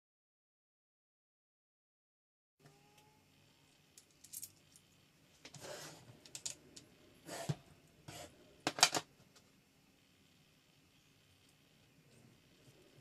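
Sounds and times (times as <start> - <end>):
metal parts clicking: 4.0 - 4.6.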